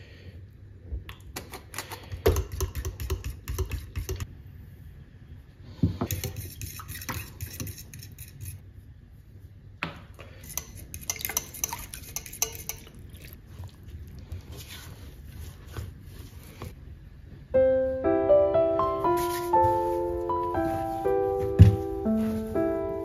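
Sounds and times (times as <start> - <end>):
fork clinking and scraping a pan: 10.4 - 13.0.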